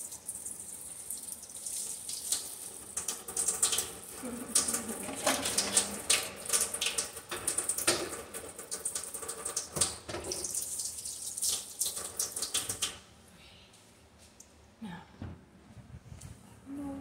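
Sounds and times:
tap water running into sink: 0.0s - 13.0s.

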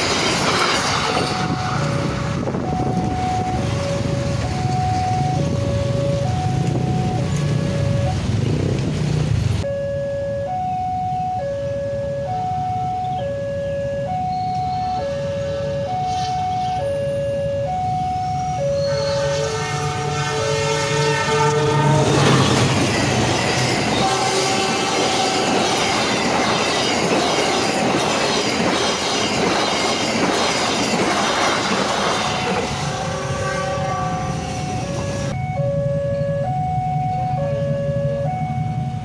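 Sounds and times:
train wheels clattering on rails: 0.0s - 2.4s, 22.0s - 32.8s
level crossing alarm two-tone chime: 1.8s - 8.2s, 9.6s - 19.3s, 34.7s - 39.0s
train horn: 18.5s - 26.5s, 32.1s - 35.3s.

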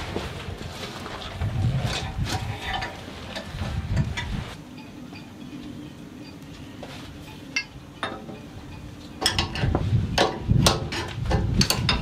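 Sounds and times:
metal tools clinking and knocking: 7.3s - 12.0s.

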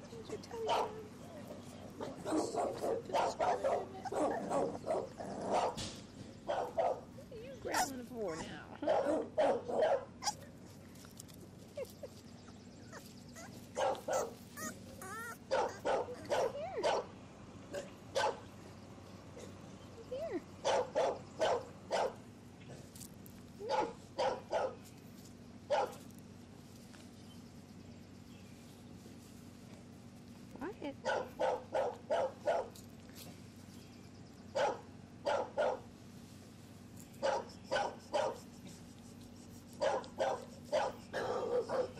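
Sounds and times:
puppy barking: 0.6s - 1.0s, 2.0s - 5.8s, 6.5s - 7.1s, 8.8s - 10.4s, 12.9s - 17.1s, 17.7s - 18.5s, 20.6s - 22.2s, 23.6s - 24.8s, 25.7s - 26.0s, 31.0s - 32.8s, 34.5s - 35.9s, 37.2s - 38.5s, 39.8s - 41.9s
puppy squeaking: 7.6s - 8.6s, 10.2s - 10.4s, 11.8s - 16.7s.

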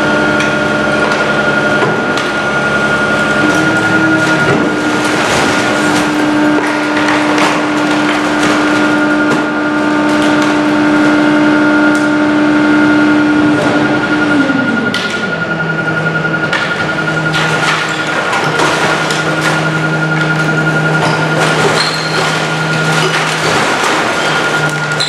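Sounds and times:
garbage truck engine whining: 0.0s - 25.0s.

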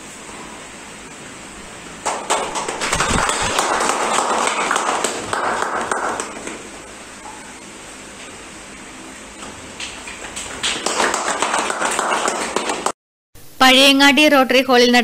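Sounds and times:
small audience applause: 2.0s - 6.6s, 9.8s - 13.0s.

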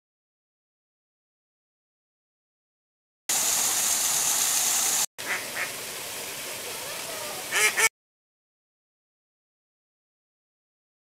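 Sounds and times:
running water: 3.3s - 7.9s
waterfall splashing: 3.3s - 7.9s
ducks quacking: 5.2s - 5.7s, 7.5s - 7.9s.

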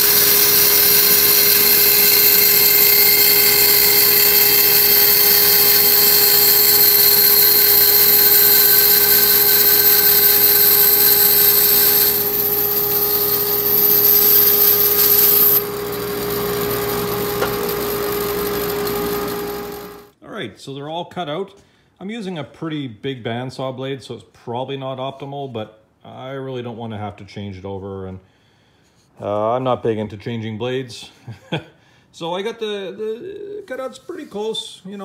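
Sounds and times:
bandsaw cutting wood: 0.0s - 20.1s
bandsaw motor hum: 0.0s - 20.1s.

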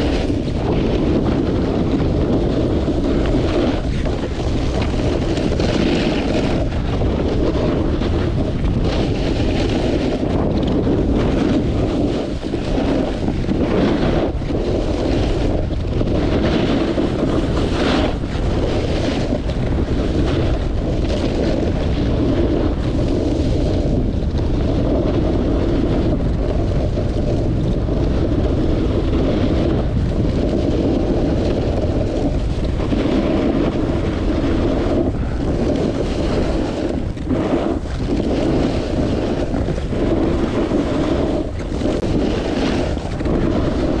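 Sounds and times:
snowboard scraping snow: 0.0s - 44.0s
wind on camera microphone: 0.0s - 44.0s
snowboard hissing over snow: 30.4s - 44.0s.

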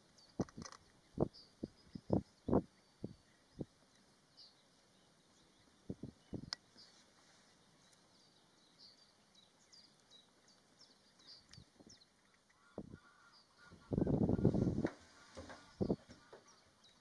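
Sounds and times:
faint bird chirps: 1.0s - 14.6s.

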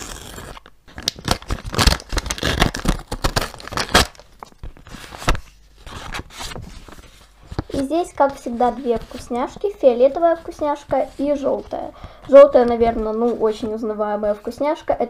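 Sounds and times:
paper tearing: 0.0s - 4.2s
tape peeling: 0.0s - 7.1s
paper rustling and crinkling: 0.4s - 13.9s.

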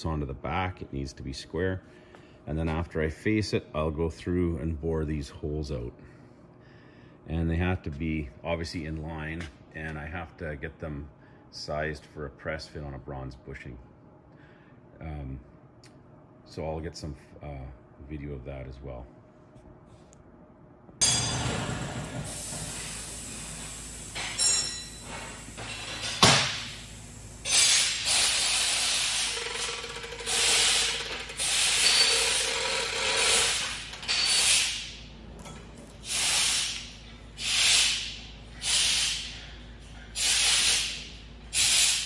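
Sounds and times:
sharp metal clank: 21.0s - 21.9s
hoist chain rattling: 29.3s - 34.4s.

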